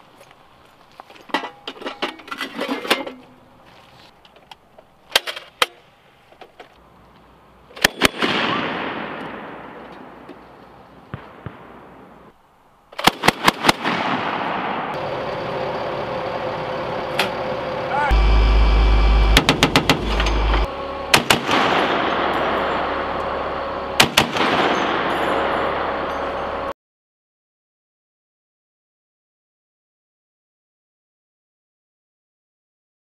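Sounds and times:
grenade launcher firing bursts: 13.0s - 14.9s, 19.3s - 20.2s, 21.1s - 22.6s, 24.0s - 25.1s
steady engine-like hum: 15.0s - 26.7s
heavy automatic weapon shots: 19.3s - 20.2s, 21.1s - 22.8s, 24.0s - 25.9s.

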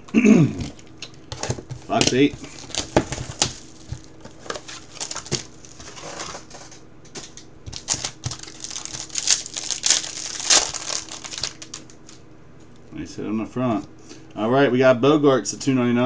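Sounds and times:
plastic shrink-wrap crinkling: 0.6s - 12.2s.

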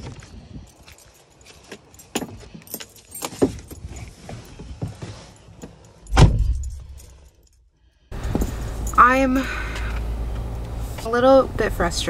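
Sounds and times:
keys jingling: 0.2s - 9.4s
car door shutting: 6.1s - 6.7s, 8.2s - 8.8s
knocks of climbing into vehicle: 8.2s - 9.0s.

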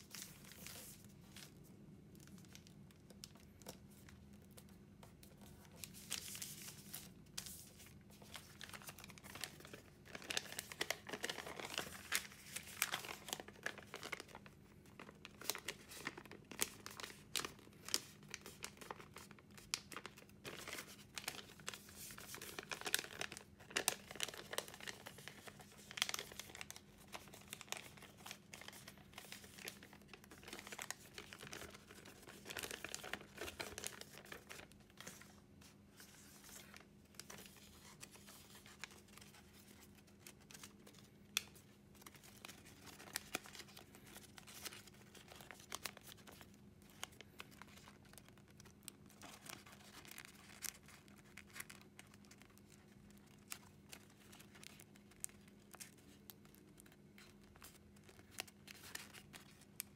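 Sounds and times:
faint steady hum: 0.0s - 59.9s
paper rustling and crinkling: 0.0s - 59.9s.

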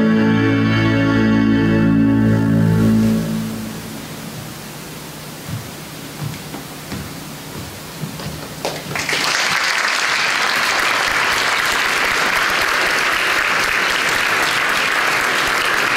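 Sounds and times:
quiet hiss: 1.2s - 9.2s
audience applause: 8.6s - 15.9s.

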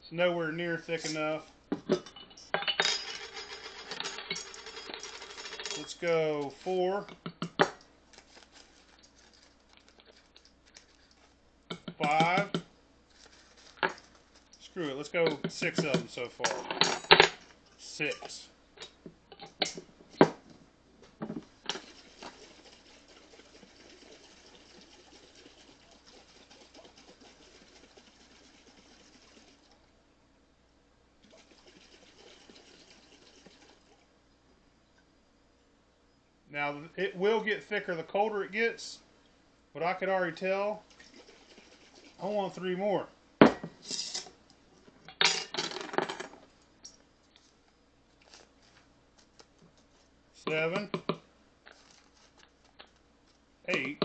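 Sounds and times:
liquid sloshing in a jar: 21.7s - 29.8s.

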